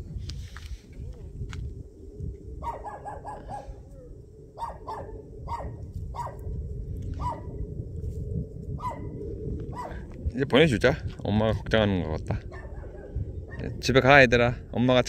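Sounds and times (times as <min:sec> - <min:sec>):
dog barking: 0:02.6 - 0:03.8, 0:04.6 - 0:06.4, 0:07.2 - 0:07.5, 0:08.8 - 0:09.1, 0:09.7 - 0:10.0, 0:12.5 - 0:13.6.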